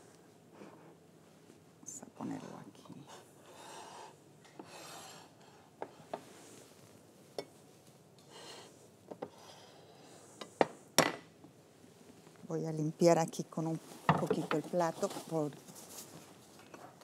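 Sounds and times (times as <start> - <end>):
soft rubbing swishes: 13.6 - 16.5.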